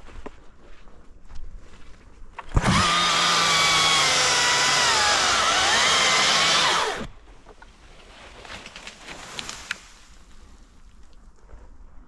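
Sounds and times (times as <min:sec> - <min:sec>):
battery chainsaw cutting branch: 0:02.5 - 0:07.1.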